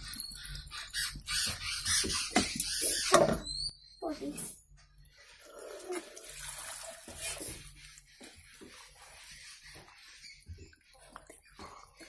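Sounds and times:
water pouring into pan: 0:05.5 - 0:07.5.

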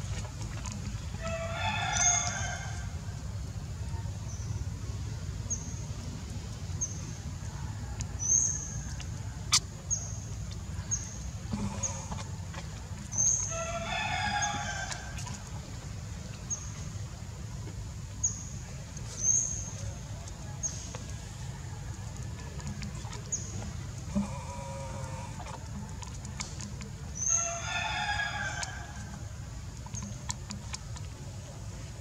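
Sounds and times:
crowing animal call: 0:11.5 - 0:12.6, 0:24.1 - 0:25.8.

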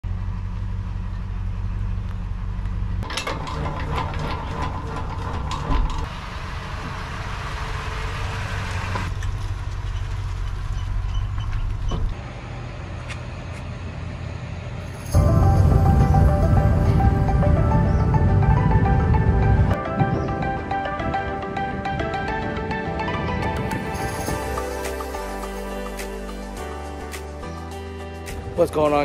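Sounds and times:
pickup engine running: 0:00.0 - 0:19.8.

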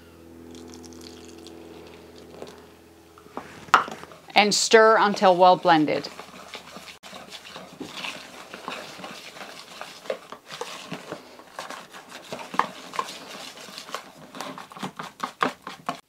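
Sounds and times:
whisk tapping against bowl: 0:06.0 - 0:16.0.

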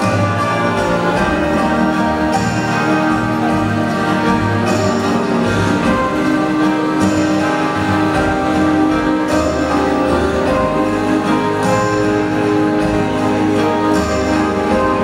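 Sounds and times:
waltz music: 0:00.0 - 0:15.0.

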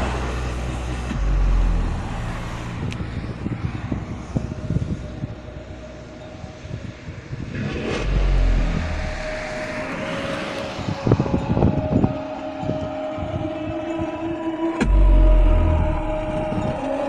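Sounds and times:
subwoofer playing deep bass: 0:00.0 - 0:06.1, 0:07.1 - 0:10.0, 0:14.8 - 0:16.9.

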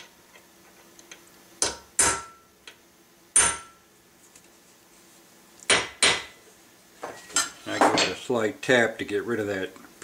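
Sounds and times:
hammer striking steel punch: 0:01.6 - 0:02.4, 0:03.4 - 0:03.8, 0:05.7 - 0:06.3.

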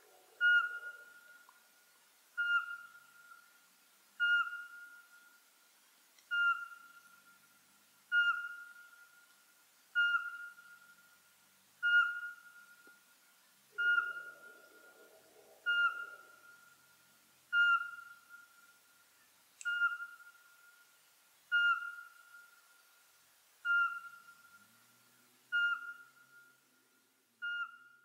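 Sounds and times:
owl whistled notes: 0:00.4 - 0:01.4, 0:02.4 - 0:03.0, 0:04.2 - 0:05.0, 0:08.1 - 0:08.9, 0:10.0 - 0:10.8, 0:11.8 - 0:12.7, 0:13.8 - 0:16.7, 0:17.5 - 0:18.5, 0:19.6 - 0:20.4, 0:21.5 - 0:22.5, 0:23.6 - 0:24.6, 0:25.5 - 0:26.6, 0:27.4 - 0:28.0.

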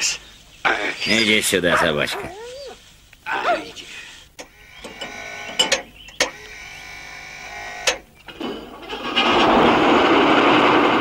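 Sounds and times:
tank engine sputtering: 0:08.3 - 0:11.0.

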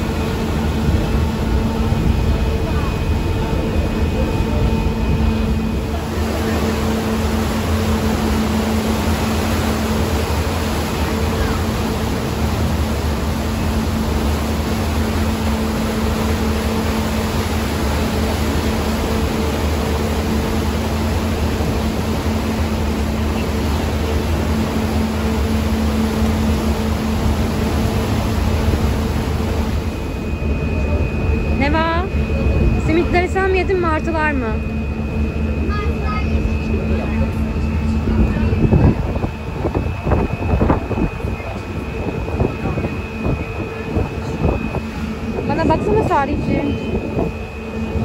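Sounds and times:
low engine hum: 0:00.0 - 0:48.0
wind and churning water: 0:00.0 - 0:48.0
wind buffeting microphone: 0:38.0 - 0:48.0.

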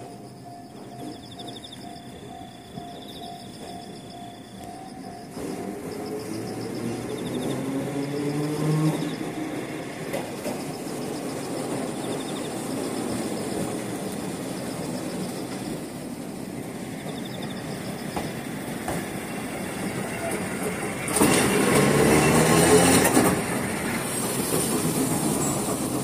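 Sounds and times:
humming tone: 0:00.0 - 0:10.3
tram wheels and motors rumbling: 0:00.0 - 0:26.0.

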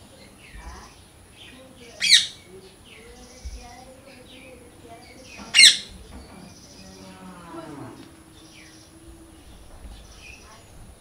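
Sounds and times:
small birds chirping: 0:00.0 - 0:11.0
parrot screeching: 0:05.5 - 0:05.9.

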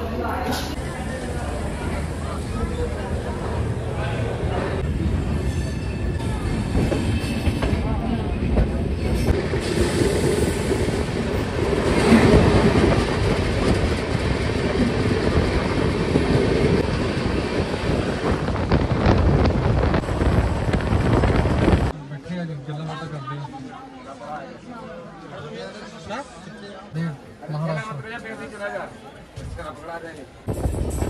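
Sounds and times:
train wheels rumbling on rails: 0:00.3 - 0:21.9, 0:30.4 - 0:31.0.

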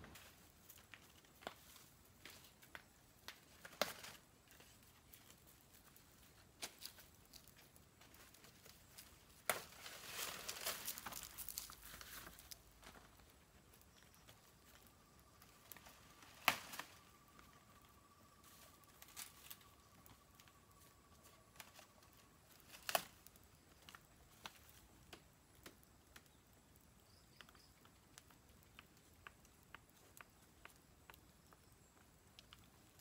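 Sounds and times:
crackling rustle: 0:00.0 - 0:33.0
light clicks and taps: 0:23.7 - 0:33.0.

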